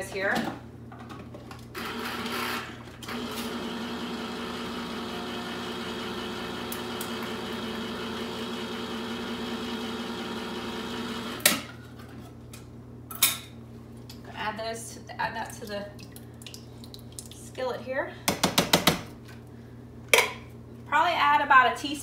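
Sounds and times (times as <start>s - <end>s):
electric can opener motor hum: 1.7s - 11.5s.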